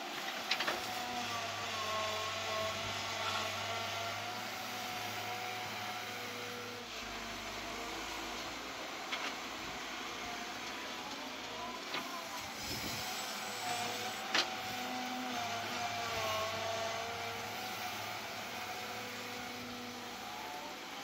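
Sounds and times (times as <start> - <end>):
excavator engine whining: 0.0 - 21.0.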